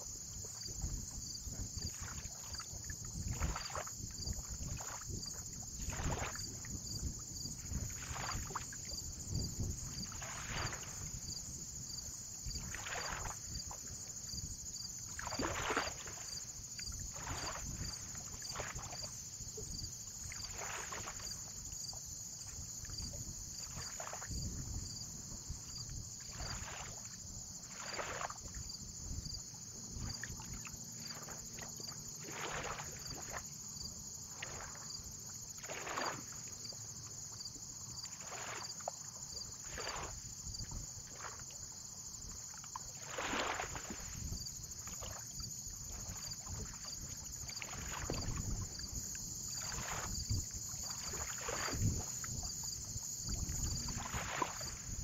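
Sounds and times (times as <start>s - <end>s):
small waves lapping shore: 0.0s - 55.0s
low wind rumble: 24.3s - 26.0s.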